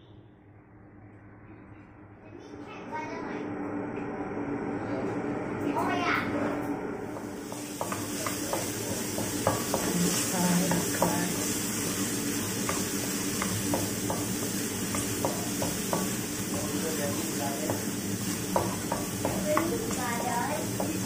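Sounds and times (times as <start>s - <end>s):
garlic sizzling in hot oil: 7.1s - 21.0s
wooden spatula scraping a wok: 7.2s - 21.0s.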